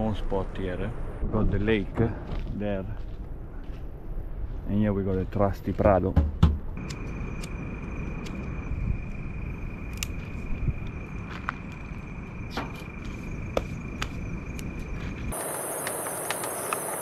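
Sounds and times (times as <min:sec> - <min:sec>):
high steady hiss: 0:06.8 - 0:17.0
insect trill: 0:06.8 - 0:17.0
wood fire crackling and popping: 0:15.3 - 0:17.0.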